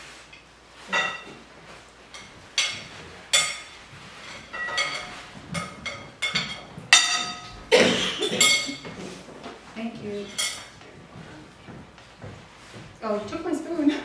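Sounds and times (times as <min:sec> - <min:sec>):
spoon clinking on glass bowls: 0:00.9 - 0:01.4, 0:02.1 - 0:07.6, 0:08.2 - 0:08.9, 0:10.2 - 0:10.7.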